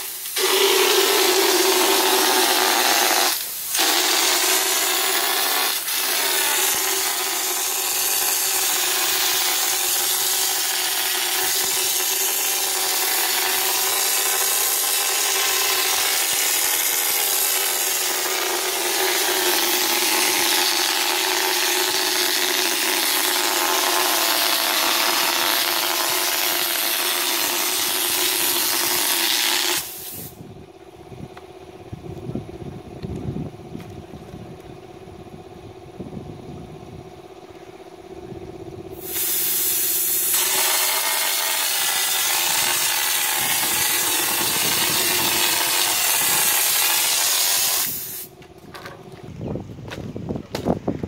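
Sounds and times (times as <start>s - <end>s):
spray gun hissing: 0.0s - 30.4s, 39.0s - 48.3s.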